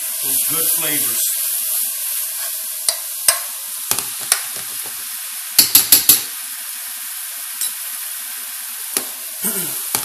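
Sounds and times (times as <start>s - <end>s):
sauce sizzling in a skillet: 0.0s - 10.0s
spoon clicking against pan: 5.6s - 6.3s.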